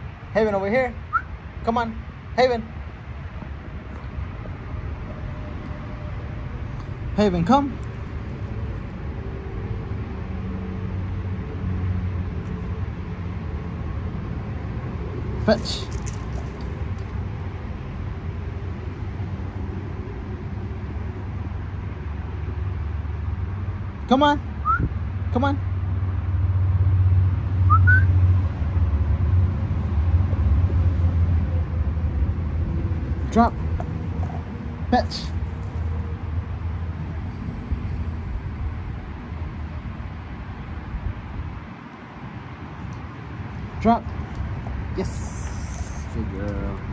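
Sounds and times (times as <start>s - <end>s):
low outdoor rumble: 0.0s - 46.9s
rising two-note whistle: 27.7s - 28.1s.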